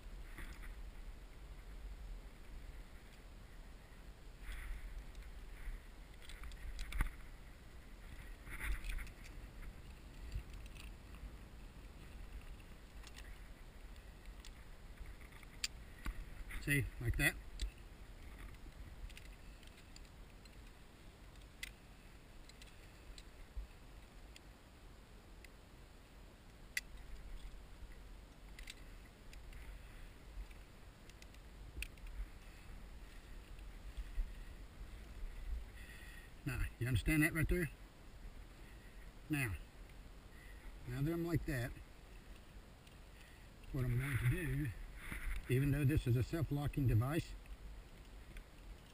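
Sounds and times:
low wind rumble: 0.0 - 48.9
climbing gear clicking: 6.1 - 7.3, 8.1 - 24.5, 26.7 - 35.3, 47.4 - 48.9
carabiners clicking and clinking: 8.5 - 11.1.

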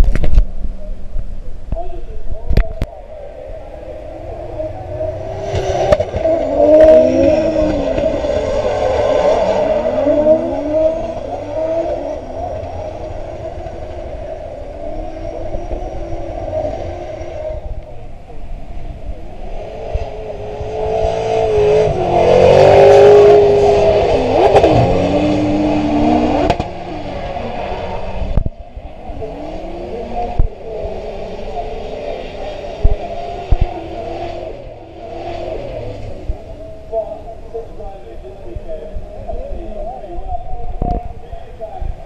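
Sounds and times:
car engines revving hard: 2.4 - 42.0.

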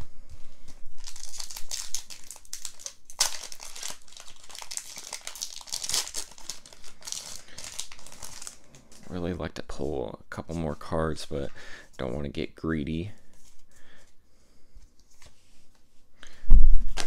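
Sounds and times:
foil wrapper crinkling: 0.9 - 9.2
sharp crackle of foil: 1.0 - 8.8.

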